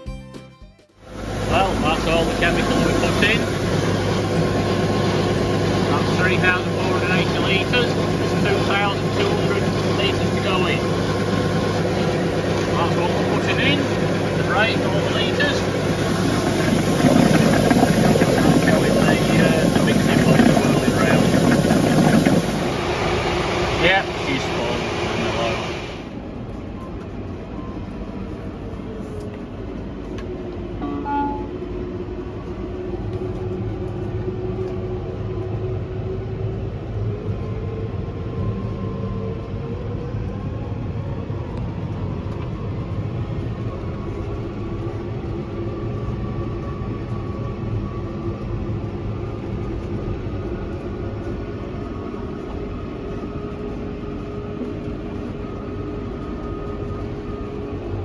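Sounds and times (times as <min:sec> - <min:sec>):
short beep tone: 0:00.0 - 0:01.1, 0:30.8 - 0:31.6
tractor engine droning in cab: 0:00.9 - 0:41.4
faint whine: 0:12.6 - 0:22.8, 0:26.3 - 0:32.4.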